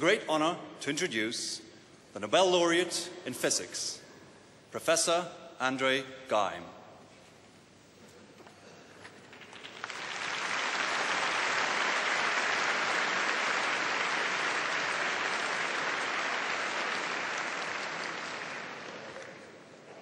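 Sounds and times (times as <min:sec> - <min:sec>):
audience applauding: 0:09.2 - 0:19.7.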